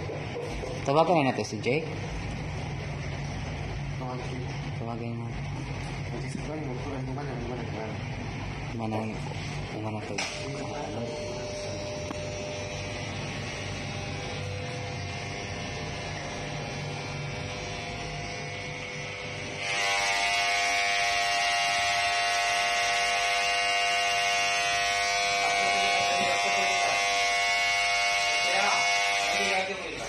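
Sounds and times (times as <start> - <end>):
low hum: 1.9 - 19.8
electric hair clippers buzzing: 5.4 - 30.0.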